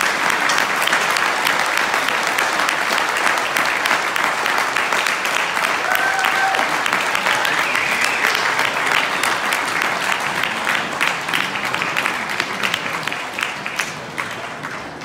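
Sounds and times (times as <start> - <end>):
audience applauding: 0.0 - 15.0.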